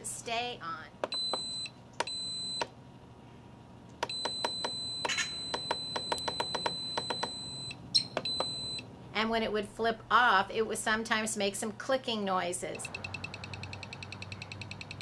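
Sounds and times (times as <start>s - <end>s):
control panel beeping: 1.1s - 2.7s, 4.0s - 8.8s.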